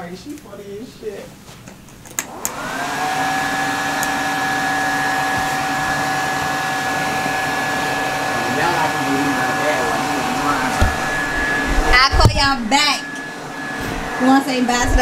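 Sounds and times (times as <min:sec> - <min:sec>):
hair dryer switch clicks: 0:02.1 - 0:02.6, 0:03.9 - 0:04.2
hair dryer fan whirring: 0:02.1 - 0:15.0.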